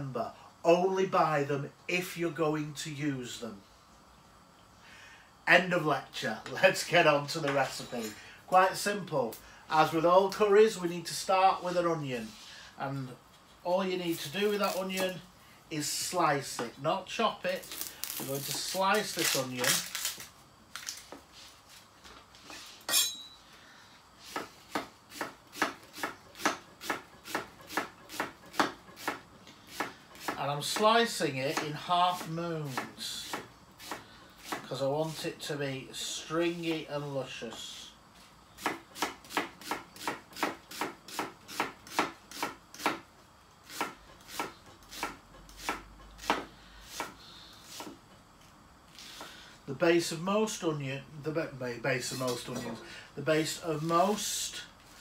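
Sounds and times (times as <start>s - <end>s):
knife slicing onion on wooden board: 24.2s - 35.2s, 38.6s - 43.0s, 43.6s - 48.0s.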